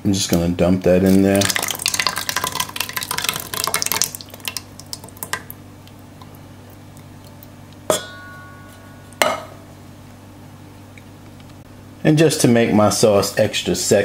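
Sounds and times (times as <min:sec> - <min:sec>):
sauce dripping: 0:01.1 - 0:07.9.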